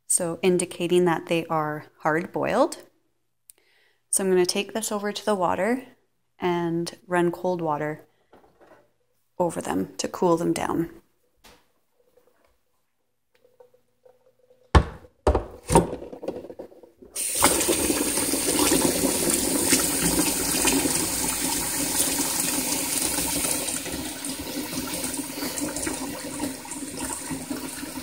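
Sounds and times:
tap water splashing into saucepan: 17.2 - 22.3.

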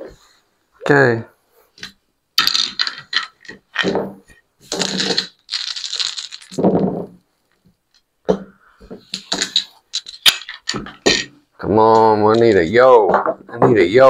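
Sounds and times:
casino chips clattering: 2.4 - 4.0, 4.7 - 6.7, 9.2 - 11.3.

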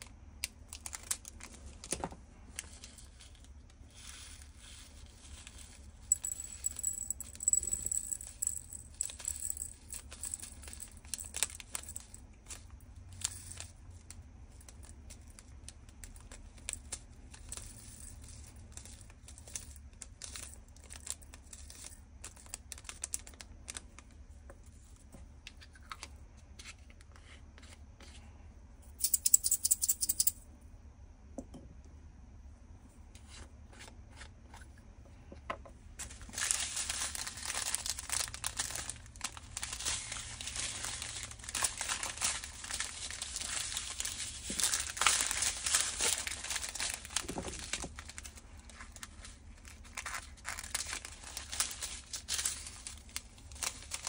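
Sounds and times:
plastic bags crinkling: 0.6 - 24.1, 36.0 - 54.0
beads rattling in plastic bottle: 2.6 - 23.9, 29.0 - 30.3, 36.0 - 54.0.

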